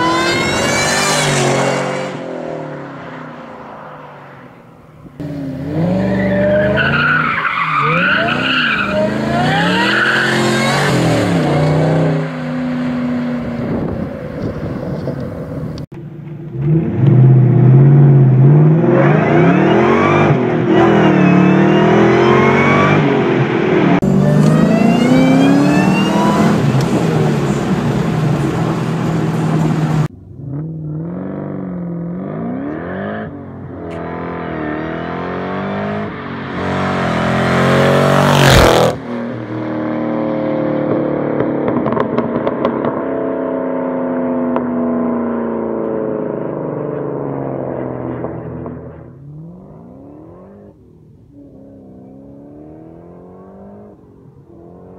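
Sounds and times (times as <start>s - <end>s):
car engines accelerating hard: 0.0s - 54.9s.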